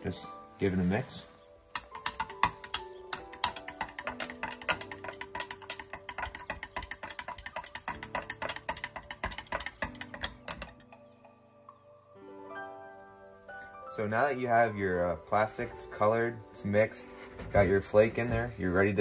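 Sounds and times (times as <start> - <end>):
background music with held notes: 0.0 - 19.0
stirrer clicking against glass cup: 1.7 - 11.1.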